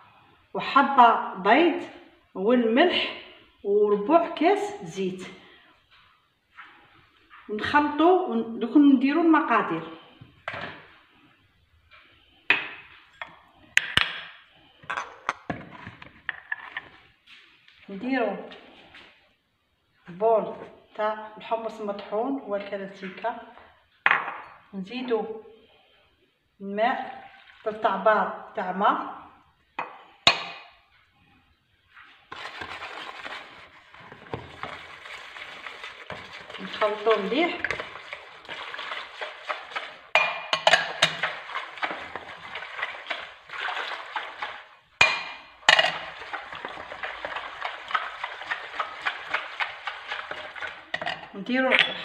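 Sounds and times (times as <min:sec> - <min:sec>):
whisk beating batter in bowl: 0:32.3 - 0:45.2, 0:45.9 - 0:51.0
glass dishes clinking: 0:40.2 - 0:41.1, 0:51.0 - 0:52.0.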